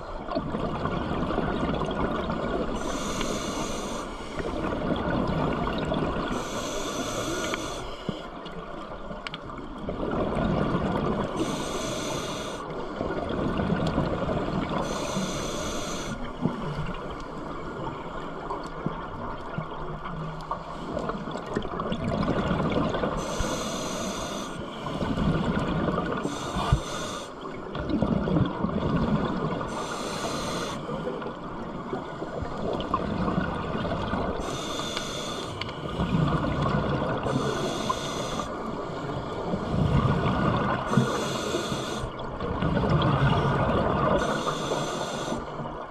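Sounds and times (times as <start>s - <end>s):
exhaled bubbles gurgling: 0.0s - 7.8s, 8.6s - 26.8s, 27.4s - 45.9s
regulator inhale hiss: 2.8s - 4.6s, 6.3s - 8.3s, 11.4s - 13.0s, 14.8s - 16.3s, 23.2s - 25.1s, 26.2s - 27.5s, 29.7s - 31.1s, 34.4s - 36.0s, 37.3s - 40.0s, 40.8s - 42.2s, 44.2s - 45.7s.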